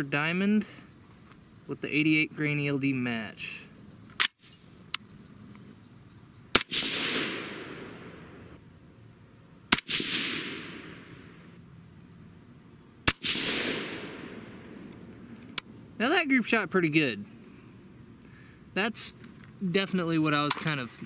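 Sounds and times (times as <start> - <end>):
suppressed rifle shots: 6.5 - 8.3, 9.7 - 11.4, 13.0 - 15.0
gunshot echo: 6.6 - 8.4, 9.7 - 11.3, 13.1 - 14.8.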